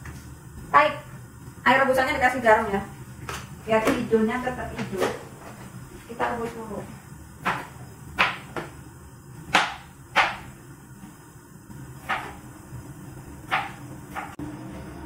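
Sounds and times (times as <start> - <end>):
knife chopping on cutting board: 7.4 - 8.8, 9.5 - 10.5, 12.0 - 12.4, 13.5 - 14.4.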